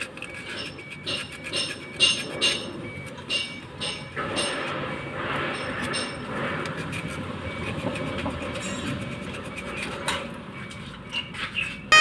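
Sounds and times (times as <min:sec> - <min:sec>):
abrasive pad scratchy rubbing: 0:04.7 - 0:10.1.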